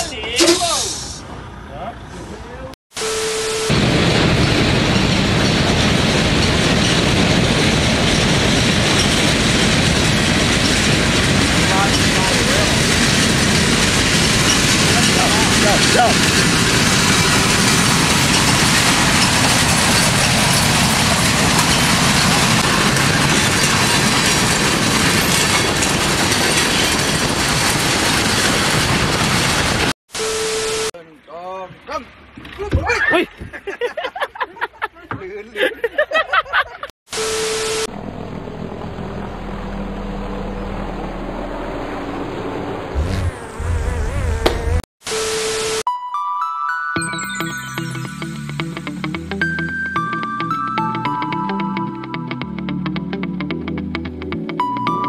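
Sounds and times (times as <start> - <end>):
freight train rumbling and clattering: 3.9 - 29.9.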